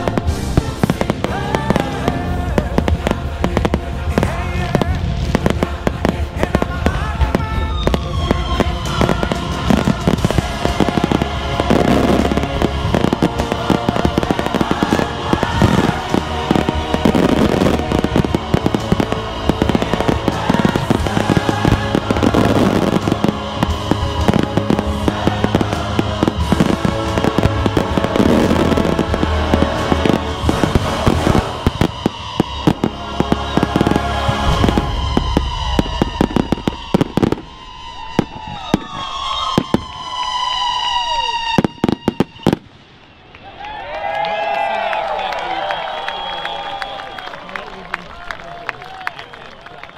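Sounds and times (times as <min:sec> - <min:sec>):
music: 0:00.0 - 0:38.0
fireworks bursting and crackling: 0:00.0 - 0:49.9.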